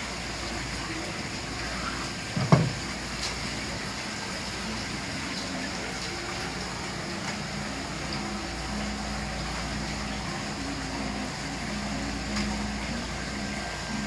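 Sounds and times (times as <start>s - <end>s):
knock on wooden cutting board: 2.4s - 2.8s.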